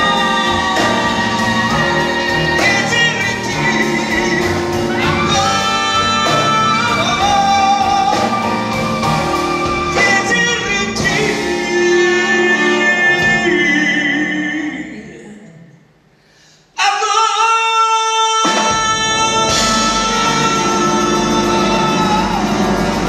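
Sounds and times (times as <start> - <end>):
live band with piano and drums: 0.0 - 15.0, 16.2 - 23.0
man singing long notes: 16.8 - 23.0.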